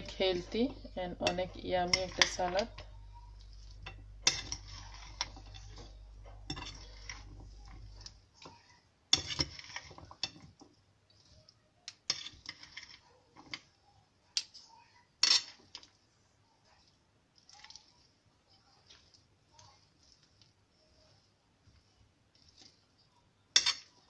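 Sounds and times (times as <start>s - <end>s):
utensils clinking against bowl: 0.0s - 2.9s, 3.6s - 8.6s, 9.2s - 10.7s, 23.6s - 24.0s
rustle of lettuce: 16.7s - 23.2s.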